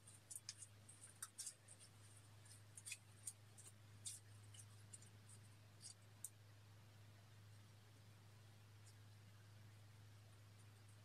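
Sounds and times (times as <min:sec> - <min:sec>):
plastic spatula scraping jar: 0:00.0 - 0:05.1
steady low hum: 0:00.0 - 0:11.0.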